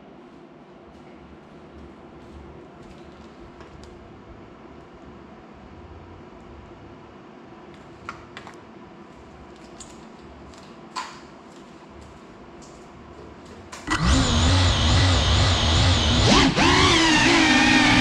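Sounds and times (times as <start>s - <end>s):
drone motors buzzing whine: 13.9s - 18.0s.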